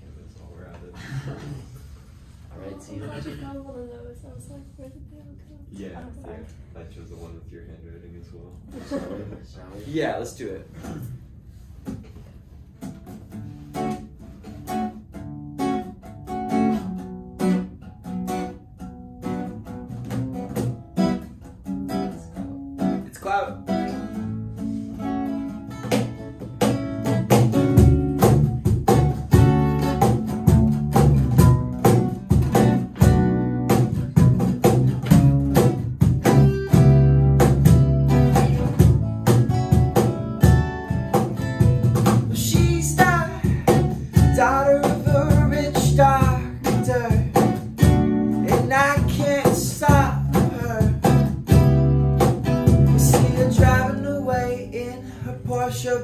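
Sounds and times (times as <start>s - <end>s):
bass guitar: 10.7s - 56.0s
cajon beat: 10.7s - 56.0s
strummed acoustic guitars: 10.7s - 56.0s
person singing: 42.4s - 47.5s, 52.9s - 56.0s.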